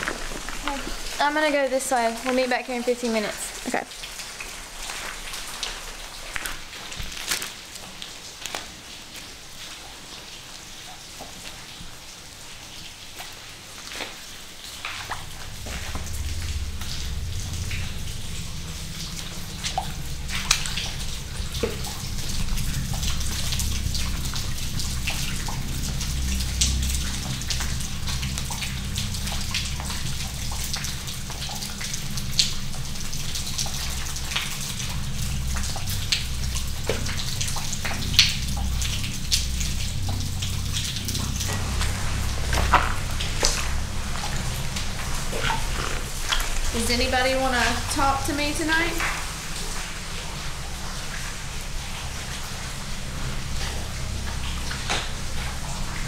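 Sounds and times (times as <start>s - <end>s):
water dripping: 0.0s - 56.0s
low rumbling drone: 14.4s - 56.0s.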